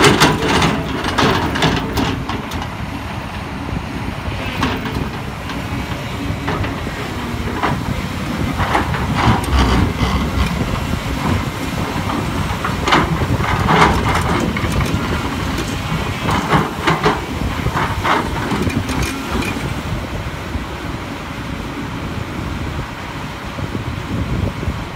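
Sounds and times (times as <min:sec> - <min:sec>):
bucket scraping and clanking: 0:00.0 - 0:02.9, 0:04.3 - 0:19.8
excavator diesel engine running: 0:00.0 - 0:24.9.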